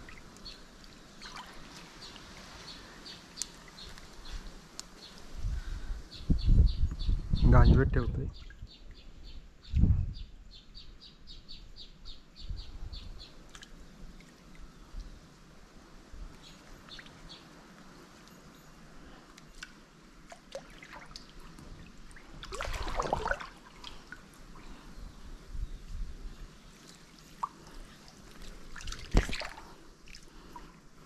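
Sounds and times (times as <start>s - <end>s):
water splashing and dripping: 0.0s - 2.6s, 19.4s - 24.2s, 26.8s - 30.8s.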